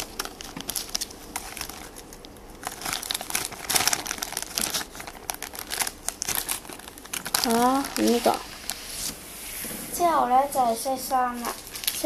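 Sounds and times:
plastic bag crinkling: 0.0s - 8.8s, 11.3s - 12.0s.

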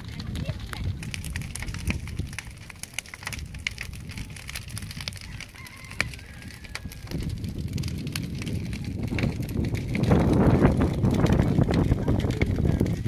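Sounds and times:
bonfire crackling and popping: 0.0s - 13.0s
wind rumble on microphone: 0.0s - 13.0s.

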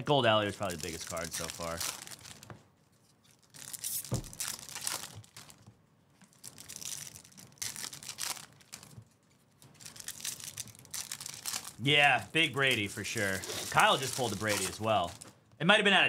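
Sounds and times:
card pack wrappers crinkling and tearing: 0.1s - 15.4s
dull thump: 4.1s - 4.4s.

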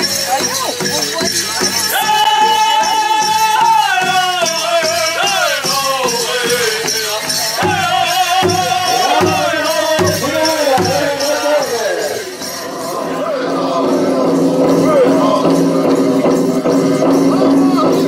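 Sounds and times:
hand drum beats: 0.0s - 11.5s
group singing: 1.7s - 16.4s
high voice singing: 1.9s - 15.6s.

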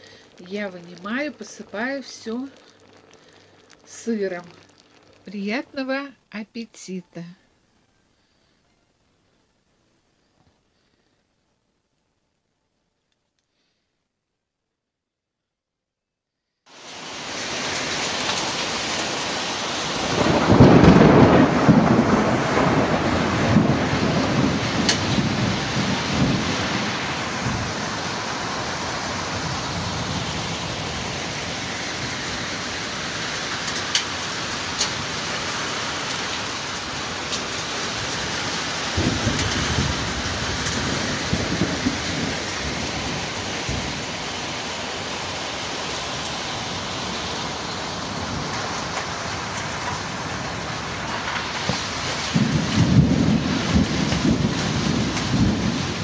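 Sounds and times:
heavy rain pouring: 0.0s - 6.1s, 16.7s - 56.0s
thunder rolling: 19.8s - 32.8s, 37.4s - 44.4s, 47.8s - 56.0s.

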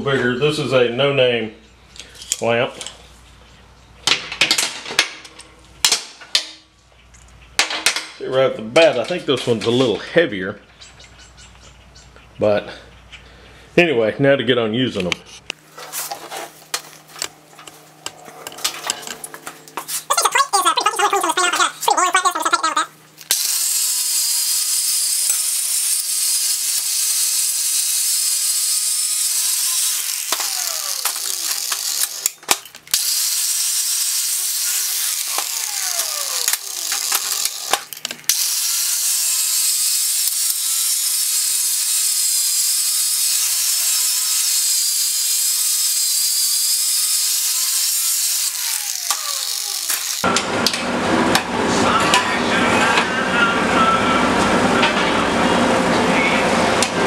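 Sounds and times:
angle grinder grinding steel: 15.8s - 50.3s.

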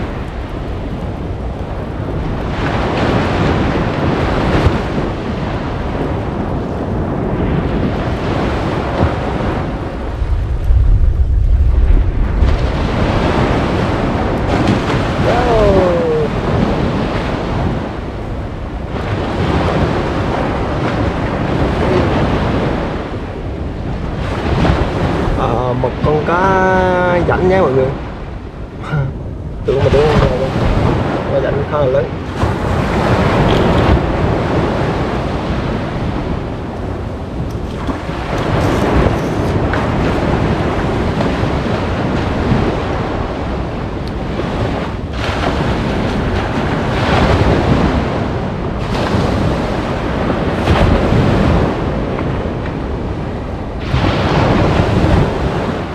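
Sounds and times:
ocean surf on sandy beach: 0.0s - 55.9s
wind buffeting microphone: 0.0s - 55.9s.

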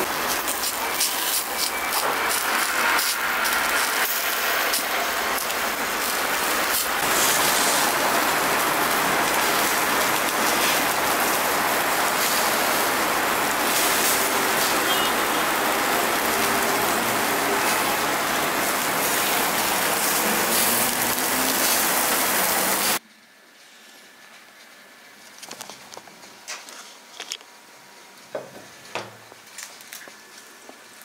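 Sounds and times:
meat sizzling on a grill: 0.0s - 23.0s.

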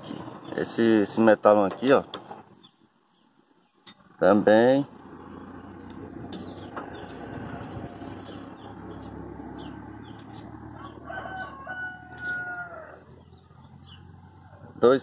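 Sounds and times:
rooster crowing: 10.6s - 13.2s.

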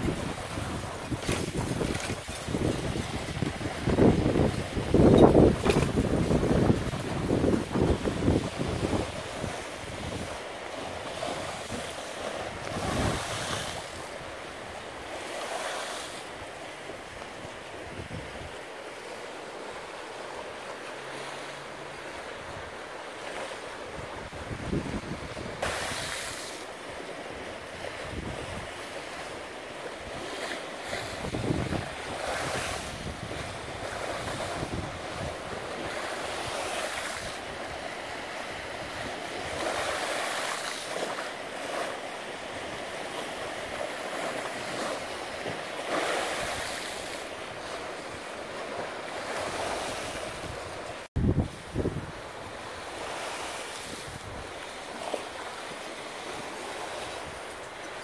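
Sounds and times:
wind buffeting microphone: 0.0s - 15.6s, 16.3s - 19.1s, 22.0s - 58.0s
waves breaking on shore: 0.0s - 58.0s.

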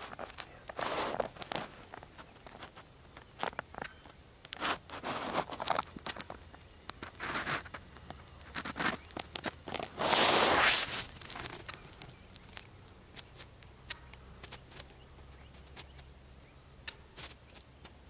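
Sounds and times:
loud hissing rustle: 0.0s - 2.3s, 9.7s - 16.1s
rustling near microphone: 0.0s - 16.2s, 16.9s - 18.0s.

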